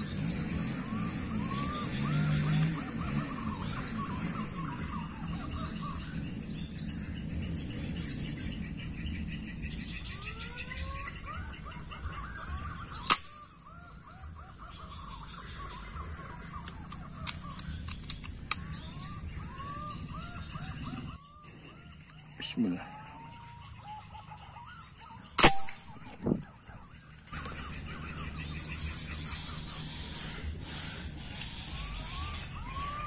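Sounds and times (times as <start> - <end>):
birds calling: 0.0 - 33.0
air rifle shot: 13.0 - 13.4, 25.4 - 26.4
high-pitched insect buzz: 27.4 - 33.0.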